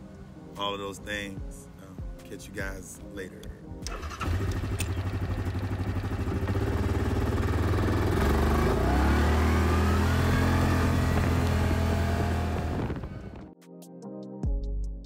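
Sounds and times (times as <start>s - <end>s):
quad engine running: 3.9s - 13.4s.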